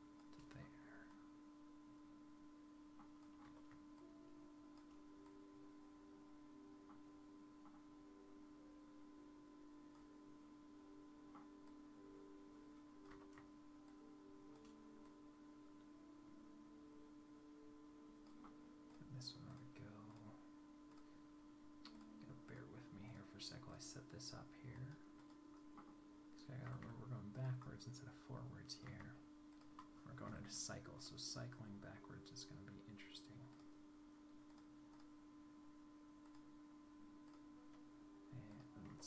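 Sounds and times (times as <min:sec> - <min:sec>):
faint electrical hum: 0:00.0 - 0:39.0
computer mouse clicks: 0:00.2 - 0:00.6, 0:36.2 - 0:36.5.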